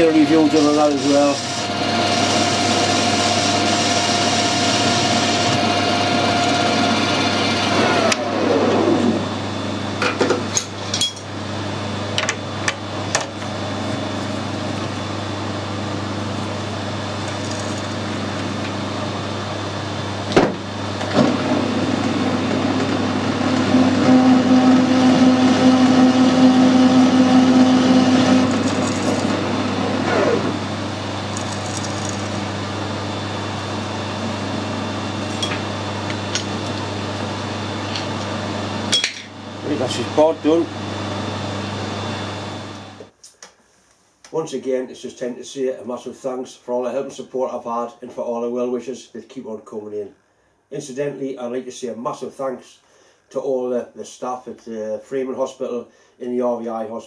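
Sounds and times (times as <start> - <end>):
metal lathe spindle whine: 0.0 - 10.2, 21.0 - 41.4
steady machine hum: 0.0 - 43.2.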